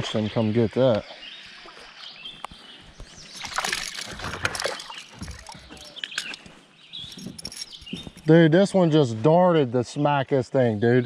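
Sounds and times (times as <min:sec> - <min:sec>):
water splashing: 0:03.3 - 0:06.4.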